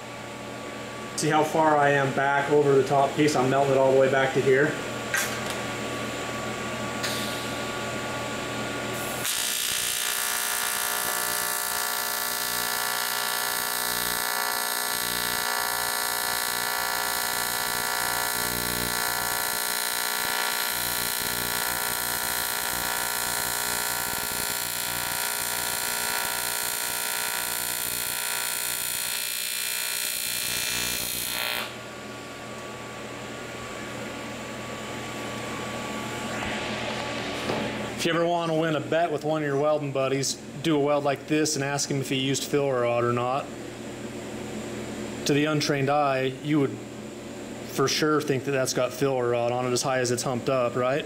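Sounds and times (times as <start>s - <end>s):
welding arc buzzing: 8.9s - 31.9s.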